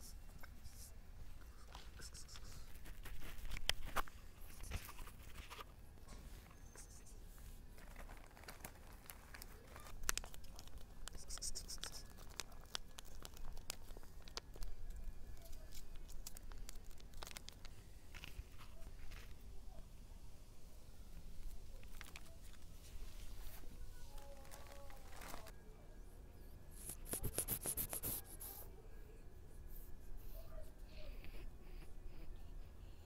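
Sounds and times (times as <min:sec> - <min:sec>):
plastic bag crinkling: 0:07.8 - 0:19.4, 0:21.4 - 0:25.5.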